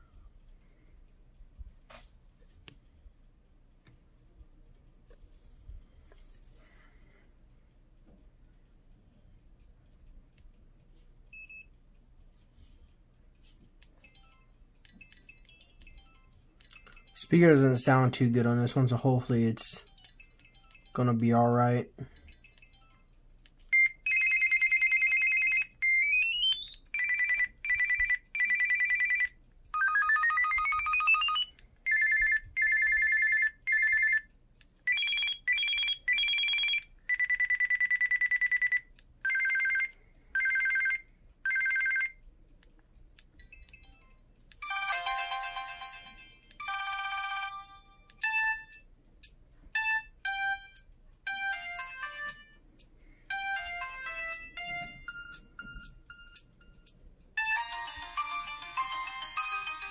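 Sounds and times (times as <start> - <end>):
phone ring tone melody: 14.0 - 17.8, 19.8 - 23.1, 23.7 - 34.3, 34.9 - 42.2, 43.4 - 48.8, 49.8 - 52.6, 53.3 - 59.9.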